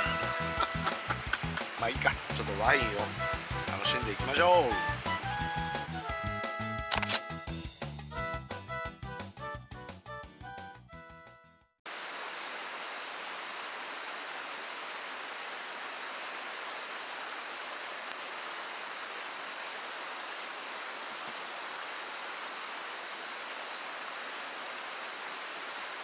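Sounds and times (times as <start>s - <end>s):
river rushing: 0.0s - 5.8s, 11.9s - 26.0s.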